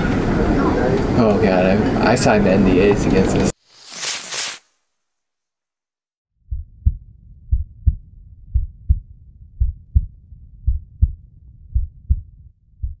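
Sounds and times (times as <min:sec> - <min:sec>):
faint low rumble: 0:06.5 - 0:13.0
heartbeat double thumps: 0:06.5 - 0:13.0.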